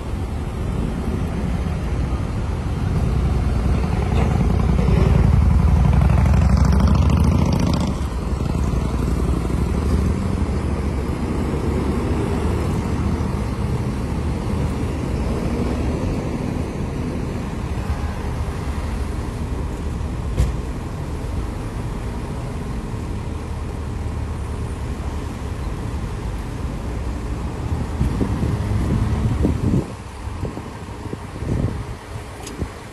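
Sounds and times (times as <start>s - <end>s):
road traffic rumble: 0.0s - 32.9s
nearby vehicle passing: 3.0s - 13.4s
wind on microphone: 27.6s - 32.8s.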